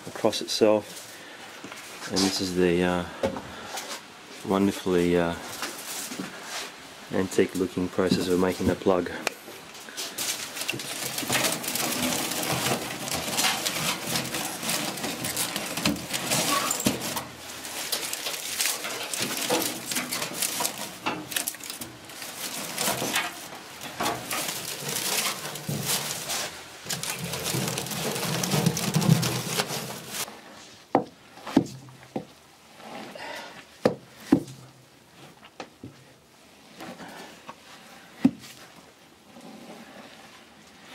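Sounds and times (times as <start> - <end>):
dry straw rustling: 9.8 - 30.8.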